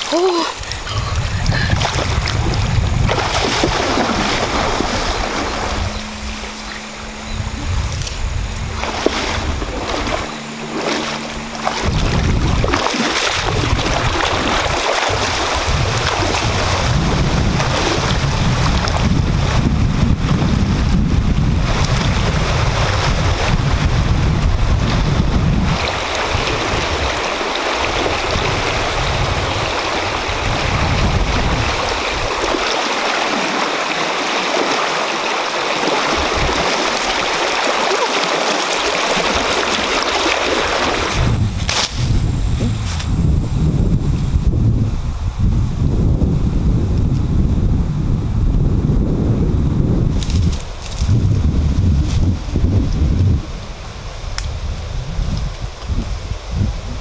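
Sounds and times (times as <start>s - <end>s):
river water rushing: 0.0s - 19.7s, 24.6s - 41.4s
wading splashes: 0.0s - 42.1s
wind buffeting microphone: 0.0s - 57.0s.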